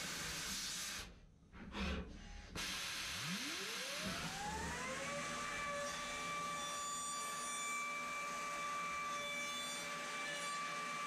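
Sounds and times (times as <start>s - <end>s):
spindle spinning up whine: 3.1s - 5.6s.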